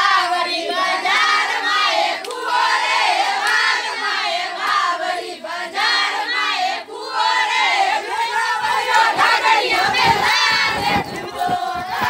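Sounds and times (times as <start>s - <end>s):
women singing together: 0.0s - 12.0s.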